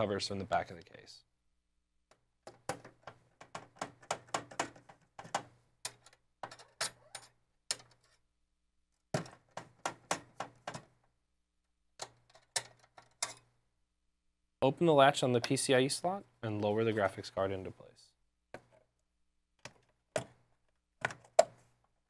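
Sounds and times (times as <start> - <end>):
metal slot covers clicking: 2.1 - 8.1, 12.0 - 13.5.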